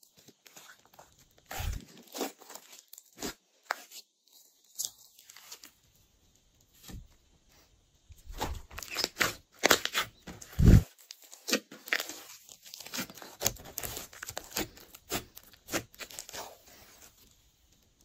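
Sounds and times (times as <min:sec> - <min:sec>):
slime squished by hand: 0:08.3 - 0:16.8.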